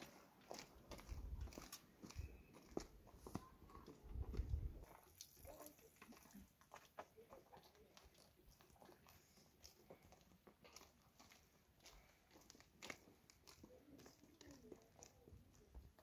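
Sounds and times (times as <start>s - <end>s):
faint footsteps on dirt: 0.0s - 16.0s.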